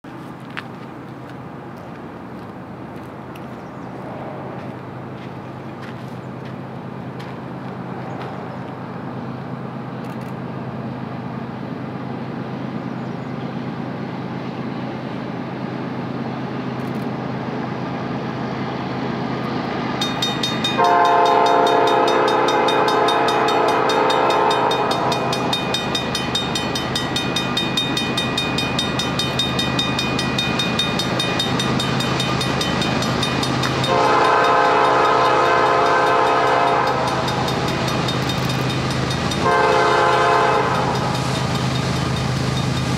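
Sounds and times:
diesel locomotive engine drone: 0.0 - 42.9
locomotive air horn blast: 20.8 - 25.5, 33.9 - 37.5, 39.4 - 41.1.

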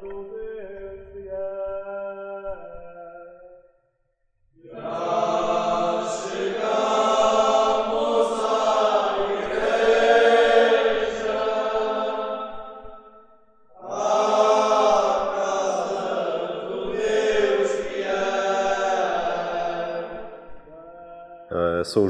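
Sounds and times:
group chanting a prayer: 4.6 - 12.5, 13.8 - 22.0.

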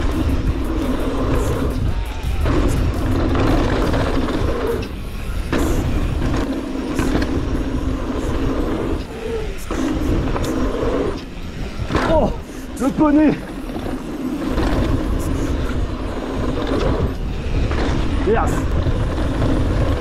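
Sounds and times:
bike rolling rattle: 0.0 - 20.0
wind rushing: 0.0 - 20.0.

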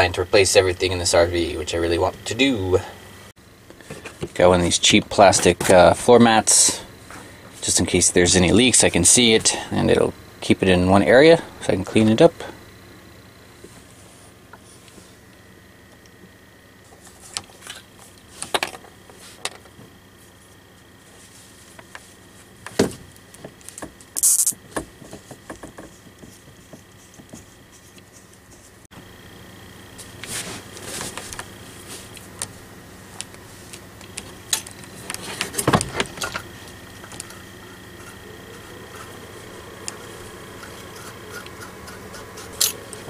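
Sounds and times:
faint high whine: 24.1 - 24.6, 27.0 - 43.0.

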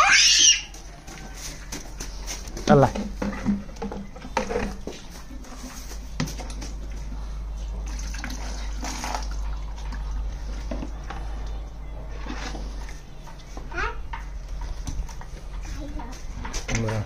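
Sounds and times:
water splashing and sloshing: 0.8 - 13.5.

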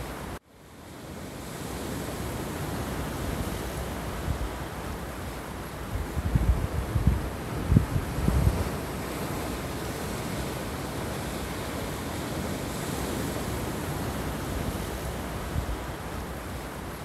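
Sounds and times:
waves breaking on rocks: 1.4 - 17.0.

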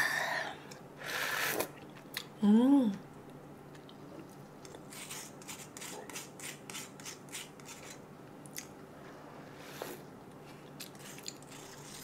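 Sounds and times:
metal spoon scraping watermelon rind: 4.9 - 8.0, 10.9 - 12.0.

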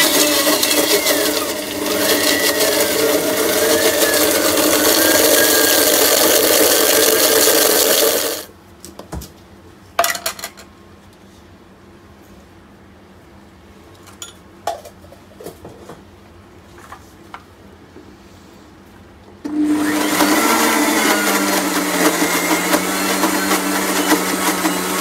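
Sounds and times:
blender running at high speed: 0.0 - 8.5, 19.5 - 25.0.

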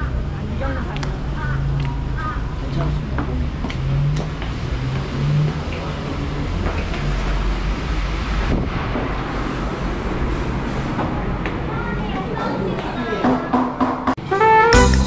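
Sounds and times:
faint engine hum: 0.0 - 8.3
street traffic rumble: 0.0 - 15.0.

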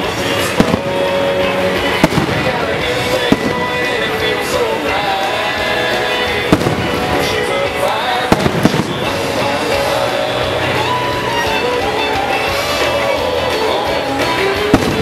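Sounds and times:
firework shells bursting: 0.0 - 5.6, 6.3 - 9.8
loud music with singing: 0.0 - 15.0.

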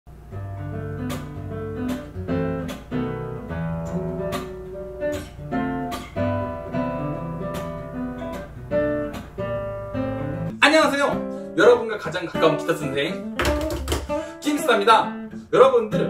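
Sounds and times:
acoustic guitar music: 0.1 - 16.0.

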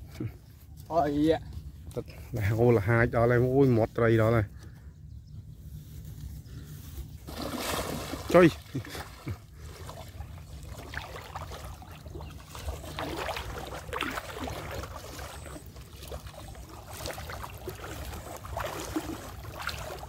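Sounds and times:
steady low rumble: 0.0 - 20.0
water sloshing around wading legs: 7.2 - 20.0.

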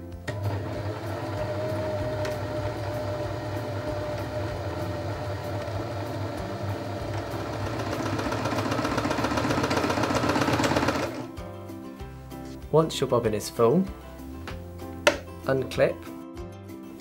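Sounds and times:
sewing machine motor running: 0.3 - 11.3.

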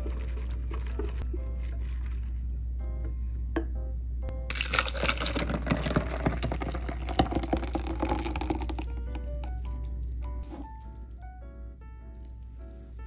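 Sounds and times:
batter pouring into cup: 4.5 - 11.2.

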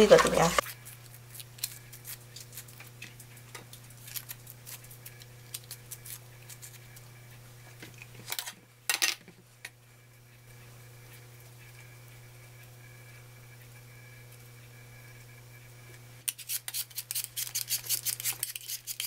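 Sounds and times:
low steady hum: 0.0 - 16.2
peel tearing with small crackles: 0.6 - 7.1.

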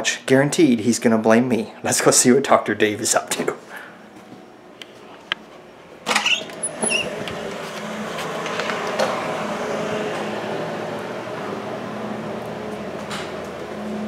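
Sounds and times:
steady machine hum: 0.0 - 14.0
brief squeak: 6.2 - 7.2.

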